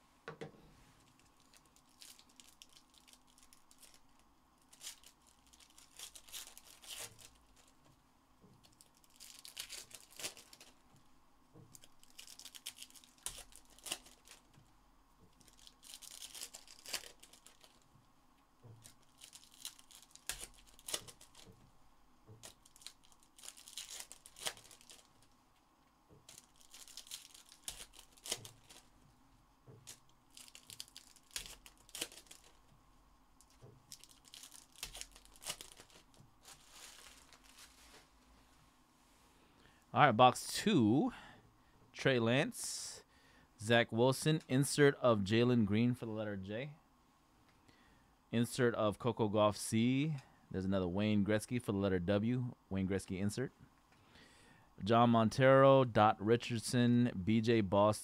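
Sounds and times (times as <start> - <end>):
card pack wrappers tearing: 1.1 - 7.8, 8.6 - 10.8, 11.7 - 14.5, 15.4 - 17.8, 18.8 - 21.5, 22.4 - 25.3, 26.2 - 28.9, 29.8 - 32.7, 33.4 - 38.0.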